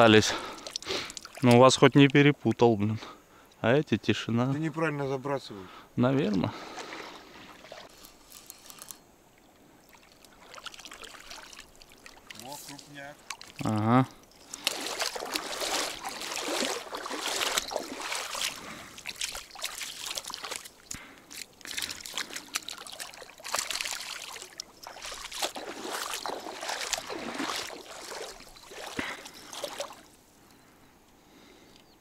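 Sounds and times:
water splashing from thrashing fish: 10.1 - 12.4, 14.4 - 20.9, 21.5 - 30.1.

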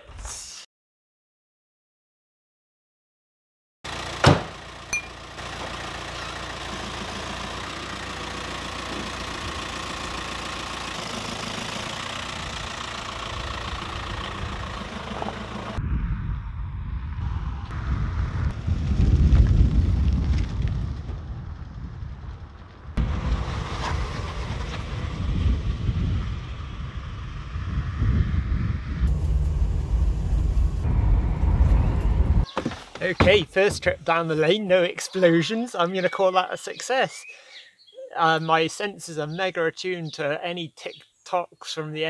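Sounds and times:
diesel engine running: 3.9 - 15.8, 29.0 - 34.1
van driving off: 3.9 - 15.8, 23.0 - 27.2, 29.1 - 34.1
van door shutting: 4.2 - 4.6, 31.9 - 34.0
wind on microphone: 15.8 - 23.2, 24.6 - 32.5.

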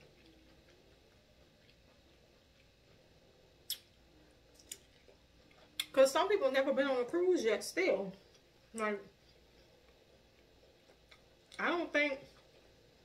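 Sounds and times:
mouth and food clicks: 3.6 - 4.0, 4.6 - 6.0.

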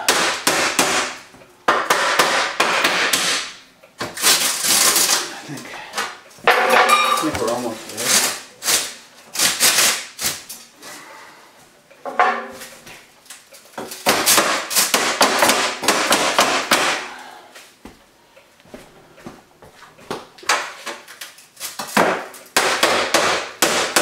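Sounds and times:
hammer striking sheet metal: 0.0 - 3.6, 14.0 - 17.2, 22.0 - 24.0.

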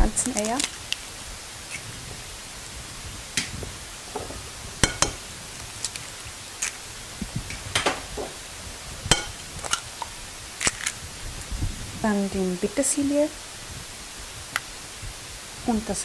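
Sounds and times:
eggs cracking against glass bowl: 0.0 - 1.0, 3.4 - 6.8, 9.1 - 11.0.

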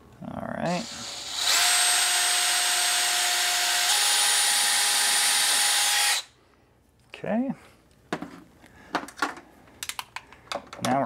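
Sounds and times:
cordless drill driving a screw: 0.7 - 6.3.

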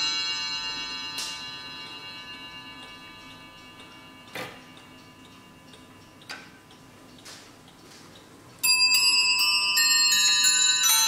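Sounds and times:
mantel clock chime: 0.0 - 7.2, 8.6 - 11.0
clock ticking: 0.1 - 11.0
clock clicks: 2.8 - 9.0.

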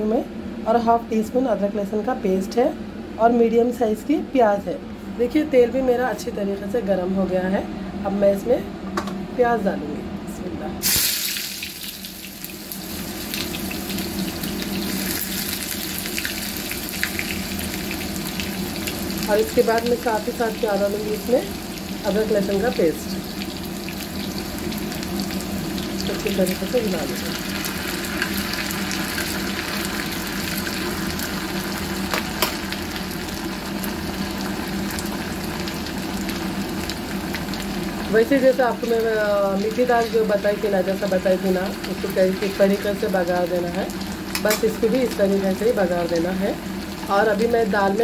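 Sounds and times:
onion sizzling in hot oil: 10.8 - 48.0.

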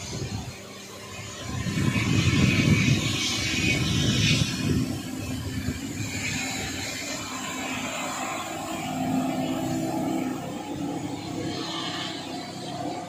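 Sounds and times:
motorboat engine droning: 0.0 - 13.0
rushing wind: 0.0 - 13.0
water rushing: 0.0 - 13.0.

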